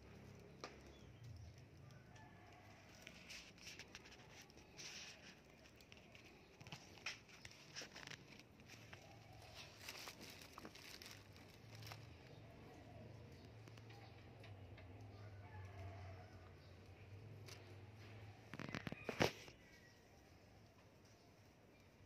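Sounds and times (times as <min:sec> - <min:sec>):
handling noise rustling: 0:02.8 - 0:12.4.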